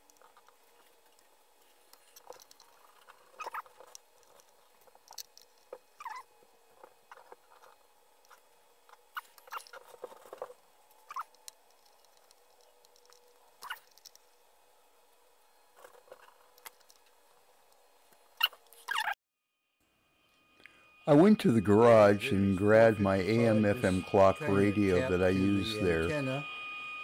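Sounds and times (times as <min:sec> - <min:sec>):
faint steady hum: 0:00.0 - 0:27.0
screwdriver scratching and clicking: 0:01.8 - 0:06.2, 0:06.8 - 0:14.3, 0:15.8 - 0:19.2.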